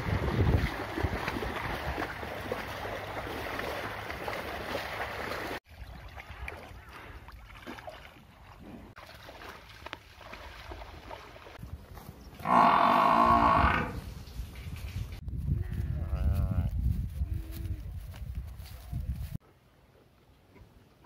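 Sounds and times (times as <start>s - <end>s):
wind on microphone: 0.0s - 2.2s, 13.5s - 19.4s
water lapping with small splashes: 0.0s - 11.9s
water sloshing: 0.0s - 11.9s.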